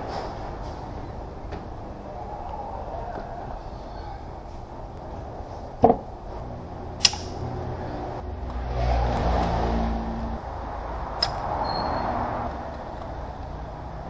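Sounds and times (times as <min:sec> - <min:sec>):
steady low rumble: 0:00.0 - 0:11.6
short metallic clicks: 0:07.0 - 0:07.4.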